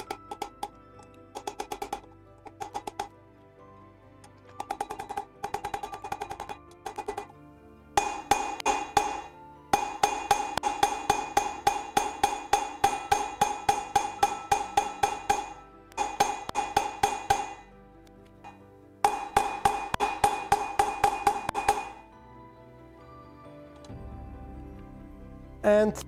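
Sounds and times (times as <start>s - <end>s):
hammer ringing on steel shaft: 8.0s - 17.7s, 18.4s - 22.1s.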